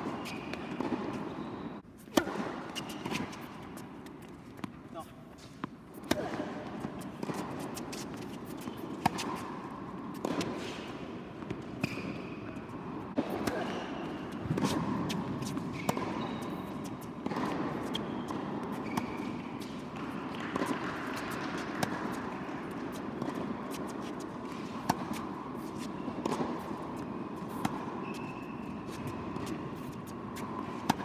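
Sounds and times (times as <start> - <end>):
racket striking tennis ball: 0.0 - 1.4, 2.0 - 4.8, 5.4 - 31.0
shoes squeaking on court: 0.0 - 31.0
ball bouncing: 13.2 - 23.8.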